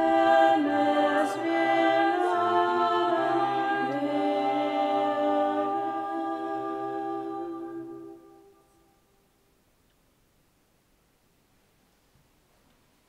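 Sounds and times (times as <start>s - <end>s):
voices singing a hymn: 0.0s - 8.8s.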